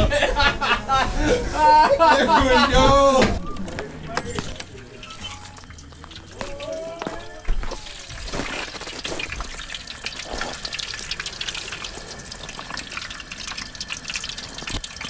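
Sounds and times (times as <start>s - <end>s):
potatoes frying in oil: 4.1s - 15.0s.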